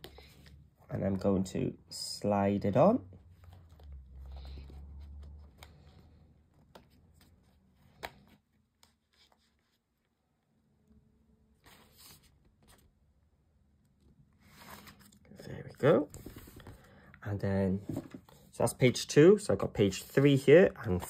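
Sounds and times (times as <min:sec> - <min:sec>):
cardstock rustling and scraping: 0:14.4 - 0:15.2, 0:15.8 - 0:16.9, 0:17.7 - 0:18.5.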